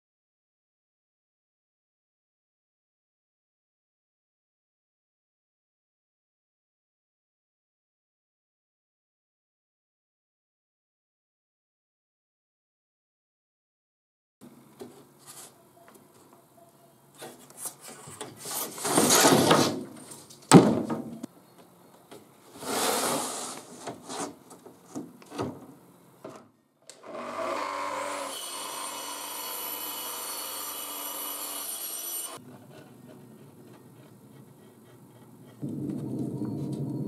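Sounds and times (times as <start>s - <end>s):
wood sheets sliding and rubbing: 17.2s - 20.4s, 22.4s - 25.6s
electric power tool running: 26.9s - 32.4s.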